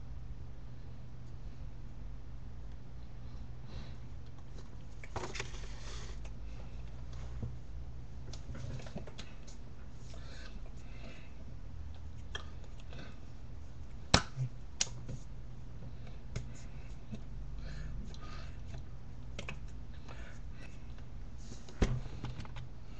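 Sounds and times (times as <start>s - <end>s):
low steady hum: 0.0s - 22.9s.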